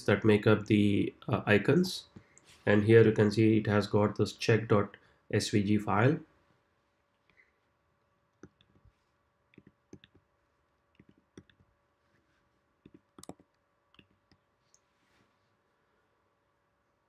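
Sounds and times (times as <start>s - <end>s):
computer mouse clicks: 9.5s - 10.3s, 12.8s - 14.8s.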